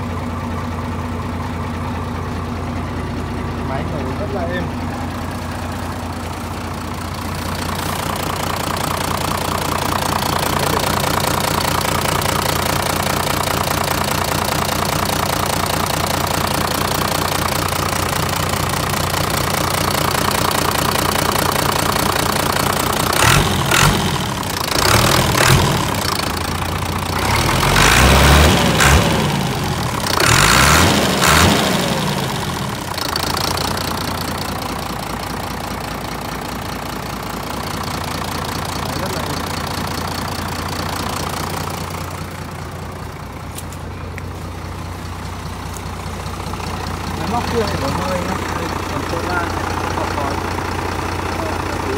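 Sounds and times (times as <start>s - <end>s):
tractor diesel engine idling: 0.0s - 51.9s.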